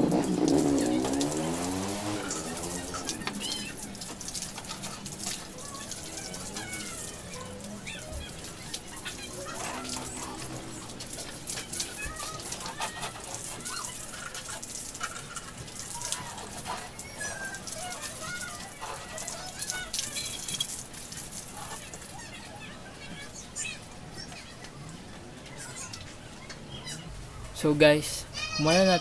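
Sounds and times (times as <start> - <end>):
hose water spraying and splashing: 0.0 - 23.2.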